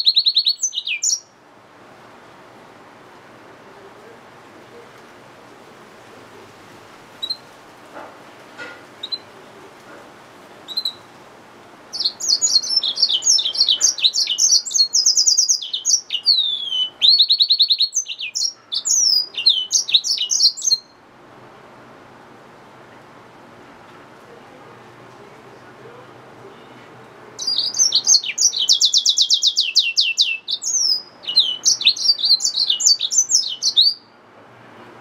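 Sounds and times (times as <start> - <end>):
finch singing trills and chirps: 0.0 - 1.3, 10.7 - 11.0, 11.9 - 21.0, 27.4 - 34.1.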